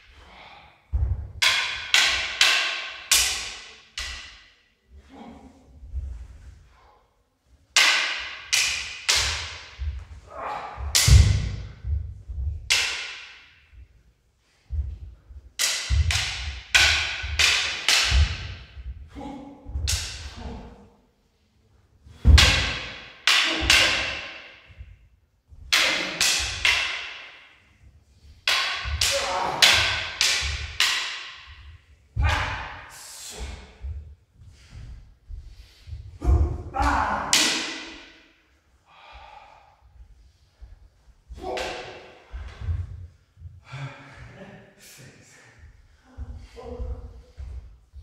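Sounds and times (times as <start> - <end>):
wooden swords clacking: 0.0 - 4.8, 7.7 - 20.9, 22.1 - 38.6, 40.9 - 43.1.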